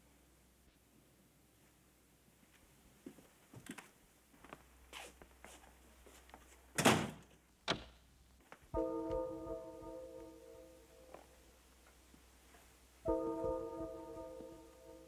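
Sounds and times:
soft footsteps: 1.6 - 6.8, 8.4 - 9.6, 11.0 - 13.2.

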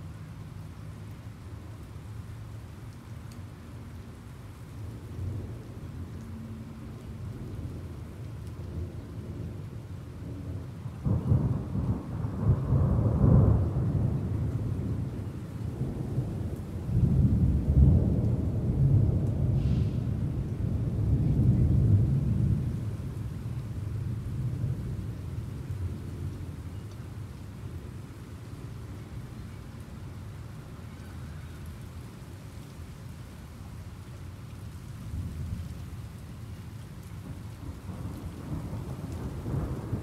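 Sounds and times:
steady rain: 0.0 - 40.0
rolling thunder: 11.0 - 26.0, 37.2 - 40.0.

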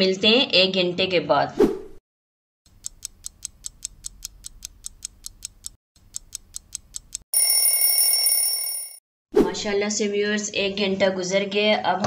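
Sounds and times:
alarm ringing: 7.3 - 9.0.

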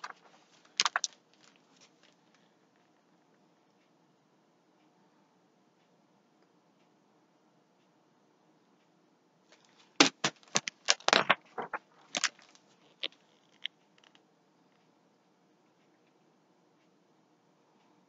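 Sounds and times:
book pages turning: 0.0 - 2.2, 9.6 - 13.1.

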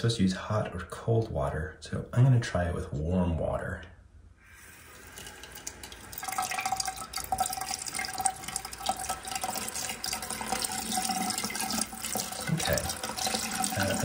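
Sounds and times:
faucet water splashing into sink: 4.6 - 14.0.

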